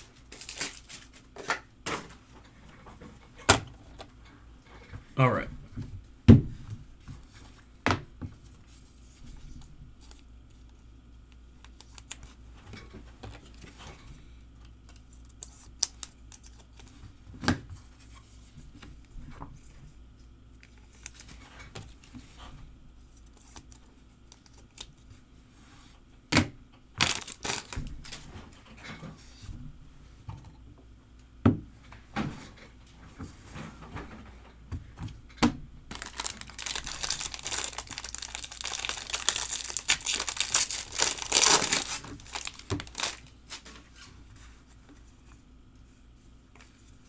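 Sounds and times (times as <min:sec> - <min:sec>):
foil wrappers crinkling: 0:00.0 - 0:01.3, 0:27.0 - 0:27.9, 0:35.9 - 0:43.6
cards rustling: 0:35.9 - 0:43.7.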